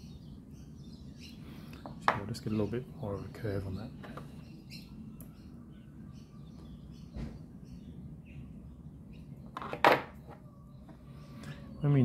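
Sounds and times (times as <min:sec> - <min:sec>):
faint bird chirps: 0:10.1 - 0:12.0.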